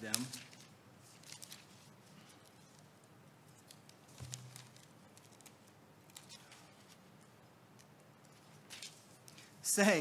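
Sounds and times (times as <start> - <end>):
faint clicks and rustles: 0.1 - 9.6.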